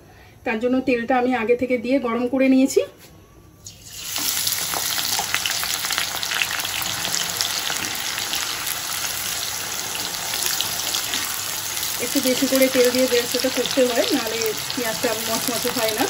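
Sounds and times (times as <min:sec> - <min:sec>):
onions sizzling in hot oil: 0:03.6 - 0:16.0
spoon stirring onions: 0:07.5 - 0:16.0.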